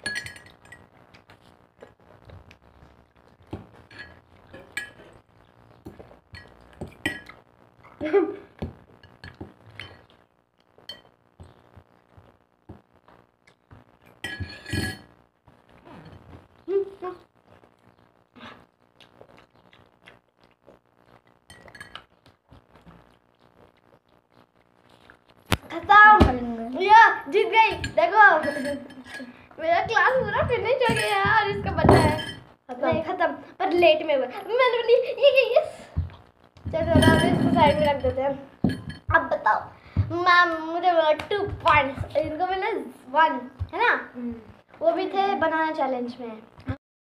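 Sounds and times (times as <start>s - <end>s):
spoons clinking against glass mugs: 0.0s - 0.9s, 3.9s - 5.0s, 6.4s - 7.4s, 10.9s - 11.1s, 14.2s - 15.1s, 21.5s - 22.1s, 27.7s - 29.3s, 30.8s - 32.5s, 36.9s - 39.1s.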